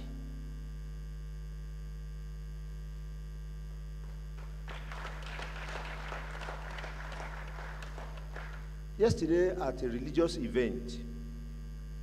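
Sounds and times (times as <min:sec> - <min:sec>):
electrical mains hum: 0:00.0 - 0:12.0
audience clapping: 0:04.0 - 0:08.8.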